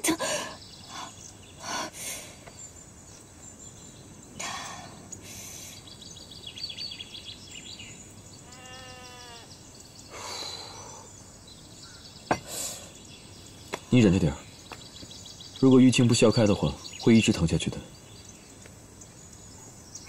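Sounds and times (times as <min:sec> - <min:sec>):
faint bird chirps: 0:00.0 - 0:20.0
soft breaths: 0:04.4 - 0:05.9, 0:10.1 - 0:11.2
short steady bird call: 0:08.4 - 0:11.2.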